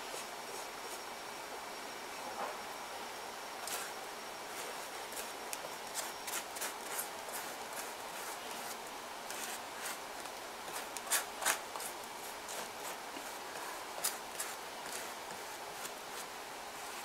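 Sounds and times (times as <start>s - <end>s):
paintbrush brushing strokes: 3.6s - 17.0s.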